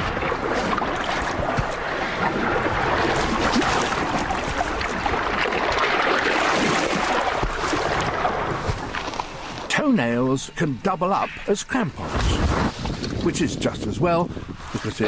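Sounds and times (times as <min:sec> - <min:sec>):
river water rushing and splashing: 0:00.0 - 0:09.6.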